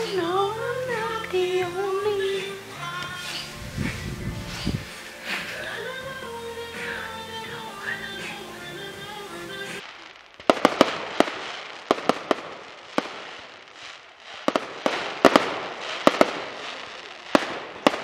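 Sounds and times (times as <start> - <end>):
background music: 0.0 - 9.8
fireworks bangs: 0.0 - 18.0
fireworks hiss: 0.0 - 18.0.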